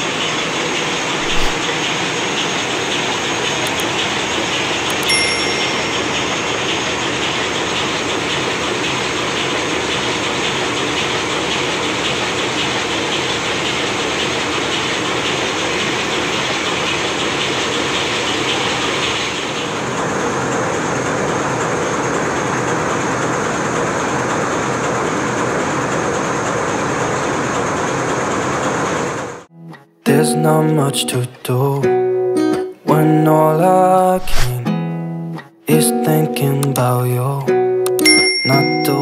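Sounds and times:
engine room machinery din: 0:00.0 - 0:29.5.

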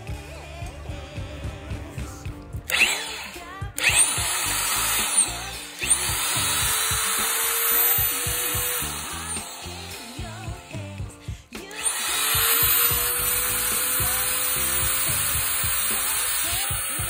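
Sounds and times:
background music: 0:00.0 - 0:17.0
angle grinder whine: 0:02.7 - 0:17.0.

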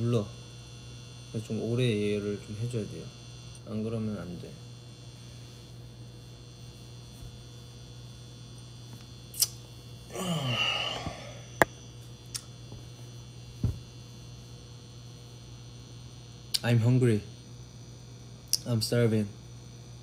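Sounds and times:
low kitchen hum: 0:00.0 - 0:16.6
short falling sigh: 0:10.1 - 0:11.5.

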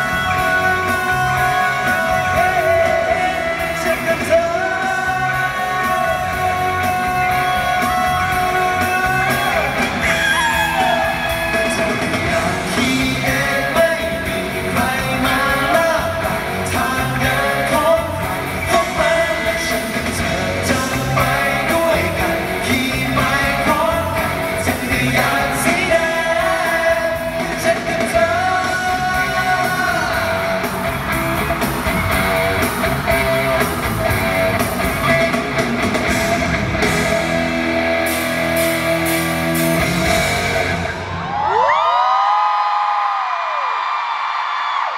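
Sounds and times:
male voices singing: 0:00.0 - 0:31.2
pop-rock band playing: 0:00.0 - 0:41.9.

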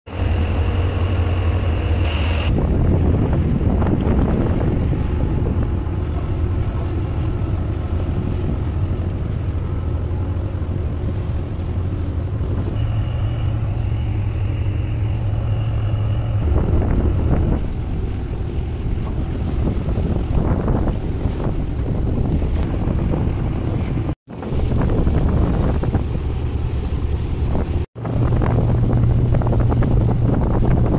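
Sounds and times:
thin high whine: 0:00.1 - 0:02.6, 0:12.6 - 0:19.4
diesel engines humming: 0:00.1 - 0:30.9
water churning along hull: 0:00.1 - 0:30.9.

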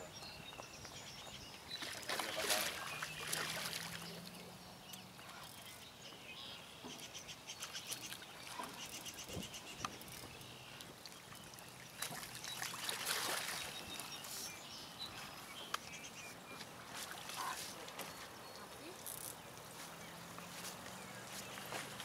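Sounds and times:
water splashing and sloshing: 0:01.6 - 0:04.5, 0:06.8 - 0:14.5, 0:15.1 - 0:22.0.

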